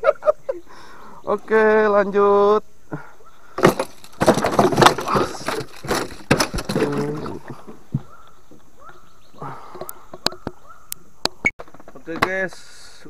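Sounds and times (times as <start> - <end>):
fish thrashing knocks and slaps: 3.6 - 8.1.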